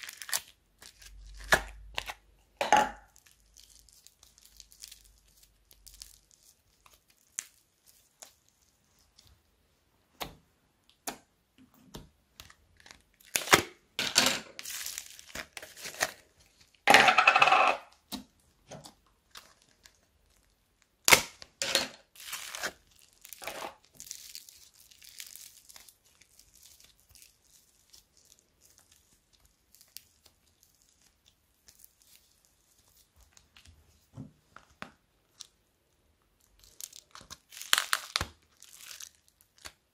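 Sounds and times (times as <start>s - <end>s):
slime tearing and crackling: 0.0s - 2.2s, 3.1s - 9.1s, 12.4s - 13.8s, 14.6s - 16.8s, 19.3s - 33.1s, 36.4s - 39.9s.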